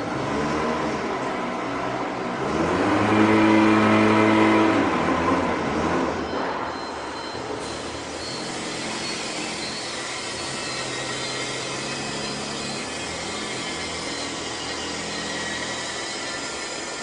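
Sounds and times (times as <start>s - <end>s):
factory machinery hiss: 7.6s - 17.0s.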